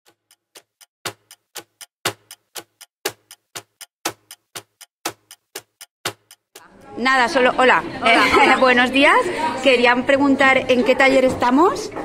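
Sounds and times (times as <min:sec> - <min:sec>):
clock ticking: 0:00.0 - 0:07.7.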